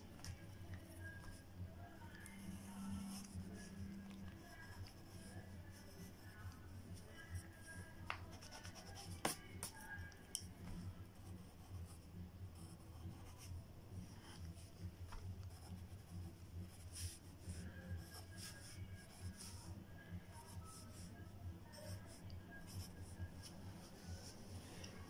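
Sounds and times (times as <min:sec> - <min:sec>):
low steady hum: 0:00.0 - 0:25.0
pencil scratching on paper: 0:02.2 - 0:09.8, 0:11.1 - 0:19.7, 0:21.7 - 0:24.4.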